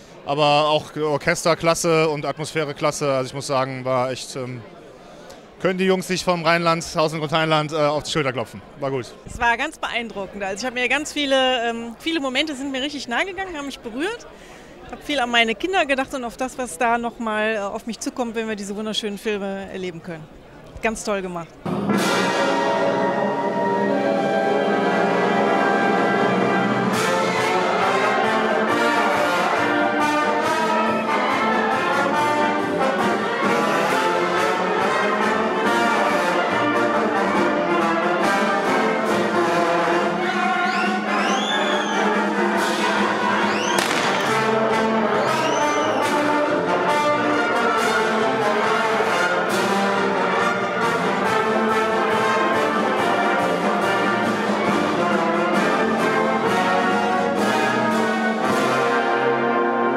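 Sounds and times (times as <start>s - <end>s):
wind band playing: 21.6s - 59.9s.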